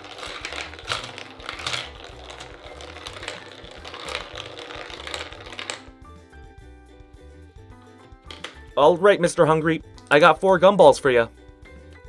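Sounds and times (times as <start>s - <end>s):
gumballs rattling down plastic track: 0.0s - 6.0s, 8.3s - 8.6s.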